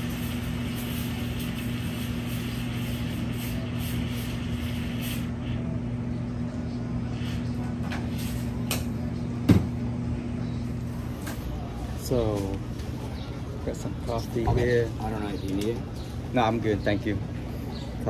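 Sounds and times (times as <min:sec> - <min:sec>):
espresso machinery hum: 0:00.0 - 0:14.4.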